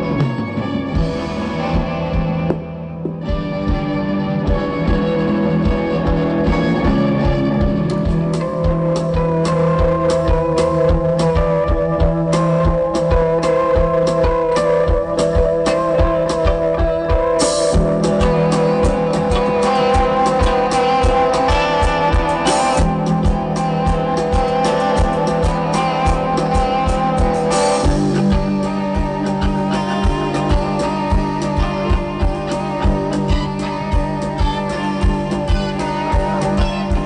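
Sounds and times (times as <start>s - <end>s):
drum kit beat: 0.0s - 37.0s
electric guitars: 0.0s - 37.0s.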